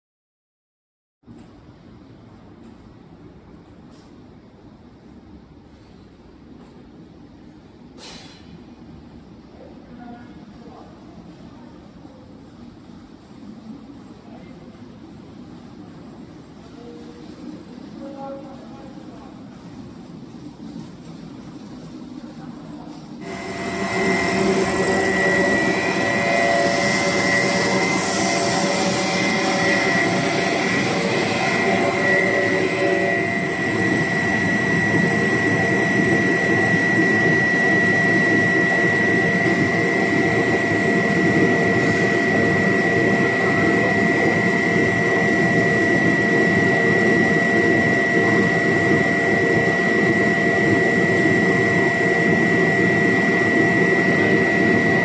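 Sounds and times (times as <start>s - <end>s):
machinery drone with high whine: 6.6s - 55.0s.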